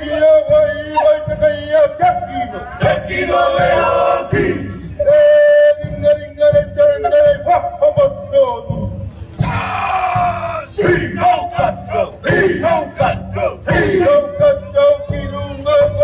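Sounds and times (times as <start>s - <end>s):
men chanting war chant: 1.3s - 4.8s, 9.4s - 16.0s.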